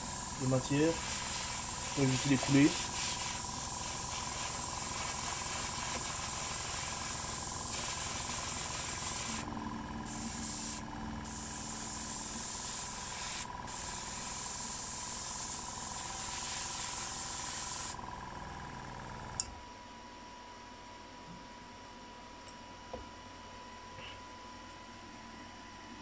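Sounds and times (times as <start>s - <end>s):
airbrush spraying hiss: 0.0s - 18.0s
small compressor running: 0.0s - 19.4s.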